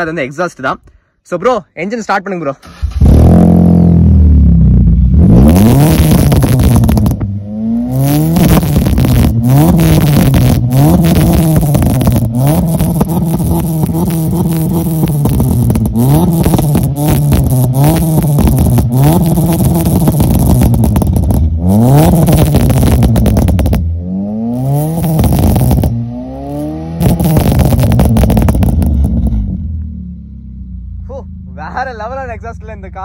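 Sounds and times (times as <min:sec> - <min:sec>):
car engine revving: 0:02.6 - 0:33.0
exhaust pops and crackles: 0:05.2 - 0:23.9, 0:24.6 - 0:29.5.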